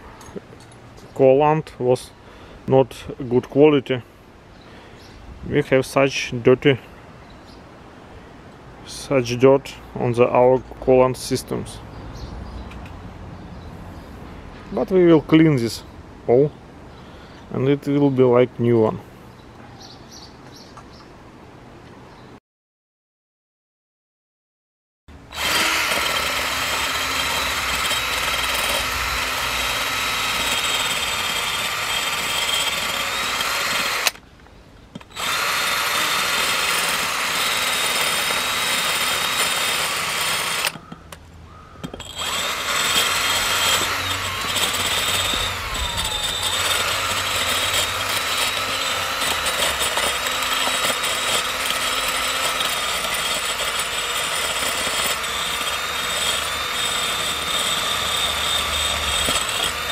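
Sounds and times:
cordless drill running: 25.2s - 34.2s, 35.0s - 40.8s, 42.0s - 59.9s.

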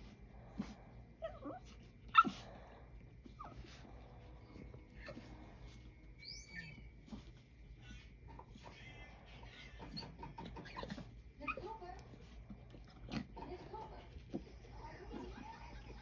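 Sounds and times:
dog snorting and sniffing: 0.0s - 14.4s
dog whimpering and whining: 0.6s - 11.7s.

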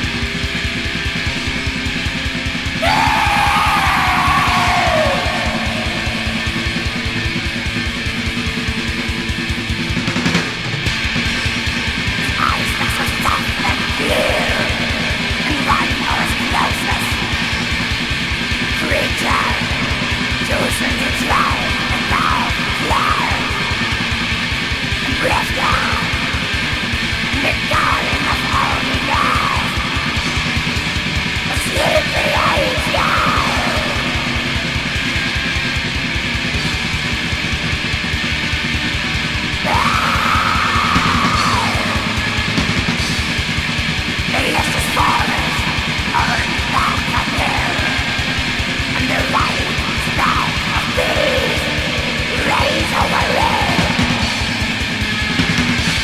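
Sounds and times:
distorted guitars and drums: 0.0s - 56.0s
shrieked vocals: 2.8s - 8.4s, 12.1s - 35.6s, 39.6s - 43.4s, 44.2s - 56.0s.

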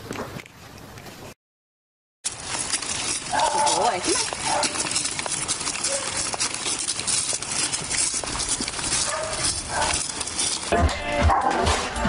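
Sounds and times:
dog claws clicking on asphalt: 2.3s - 11.8s.

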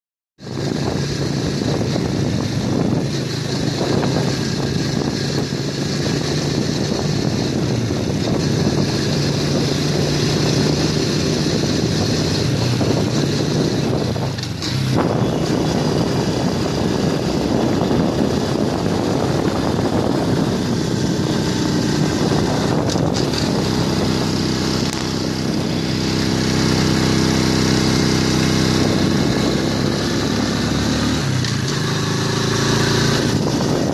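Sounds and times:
motorcycle engine running: 0.4s - 33.9s
wind rushing over microphone: 0.4s - 33.9s.

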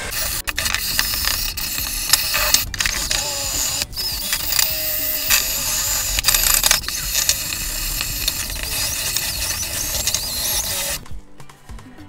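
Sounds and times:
faint high squeaks: 0.0s - 11.0s
wire brush scrubbing metal: 0.0s - 11.0s.

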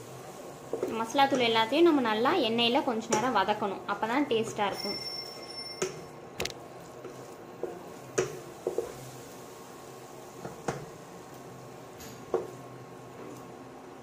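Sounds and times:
spices frying in oil: 0.0s - 14.0s
spatula scraping in a pan: 6.7s - 10.9s.

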